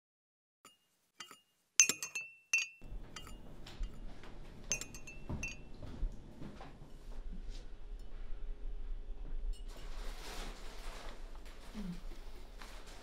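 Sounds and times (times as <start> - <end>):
spoon clinking in a cup: 0.7 - 4.0, 4.7 - 5.7
faint low room hum: 2.8 - 13.0.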